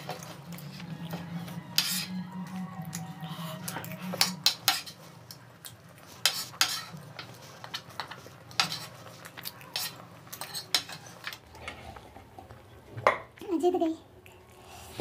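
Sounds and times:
cutlery clinking on plates: 1.8 - 2.1, 9.8 - 11.4.

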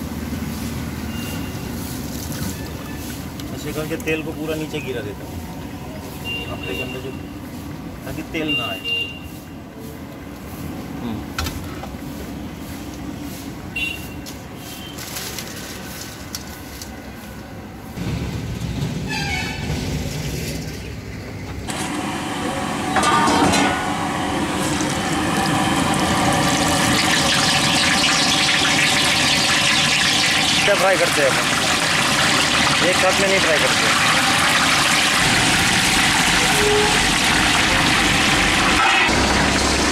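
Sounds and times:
hot oil bubbling and sizzling: 0.0 - 7.2, 21.7 - 39.9.

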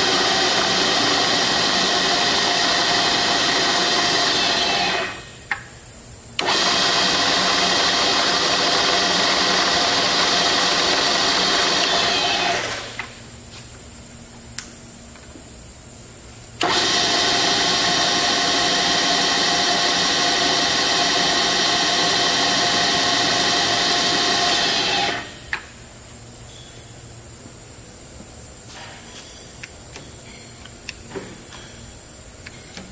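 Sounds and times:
milling machine spindle whine: 0.0 - 5.4, 6.4 - 13.2, 16.6 - 25.6.

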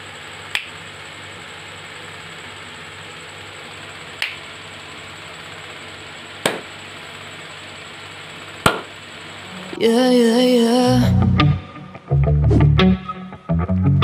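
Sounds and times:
steady low hum: 0.0 - 14.0
hand claps: 0.5 - 0.7, 4.2 - 4.4, 6.4 - 6.7, 8.6 - 8.9.

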